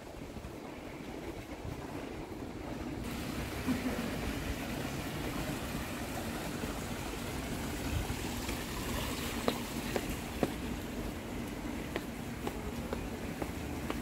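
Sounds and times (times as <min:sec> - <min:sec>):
water trickling in fountain: 0:03.0 - 0:14.0.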